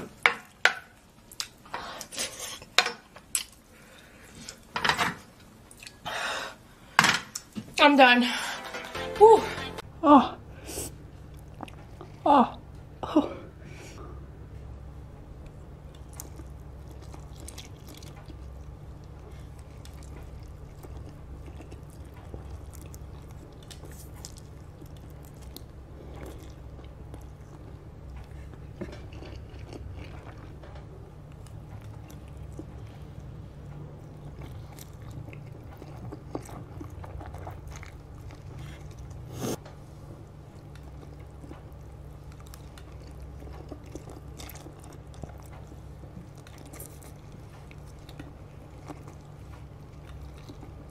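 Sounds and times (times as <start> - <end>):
steady low hum: 5.6 - 50.9
person slurping and chewing noodles: 15.8 - 50.9.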